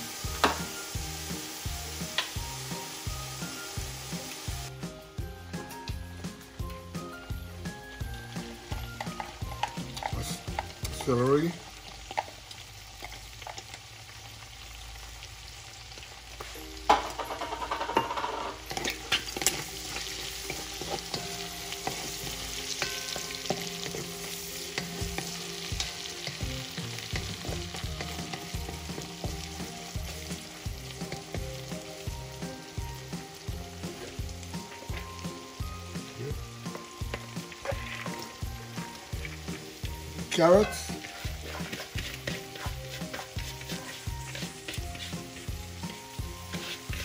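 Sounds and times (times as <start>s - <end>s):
shrimp sizzling in oil: 0.0s - 47.0s
wooden spoon stirring and scraping: 6.4s - 12.4s, 16.4s - 35.2s, 36.7s - 47.0s.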